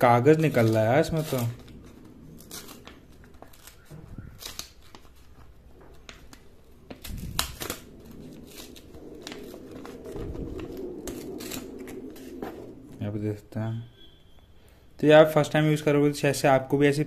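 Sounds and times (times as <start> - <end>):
paper crinkling and tearing: 0.0 - 13.1.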